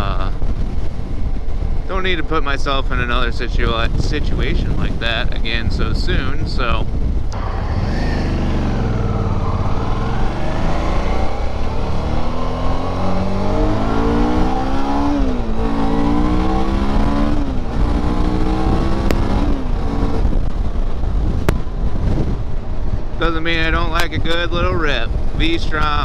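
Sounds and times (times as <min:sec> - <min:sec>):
motorcycle engine accelerating: 0:06.7 - 0:26.0.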